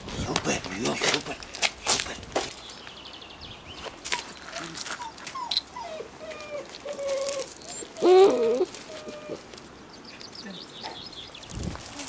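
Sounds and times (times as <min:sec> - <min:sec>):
puppy whining: 0:04.1 - 0:09.6.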